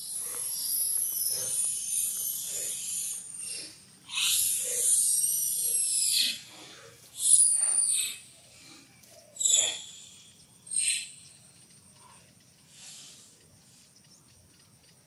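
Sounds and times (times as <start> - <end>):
baby monkey screaming: 4.1 - 5.2.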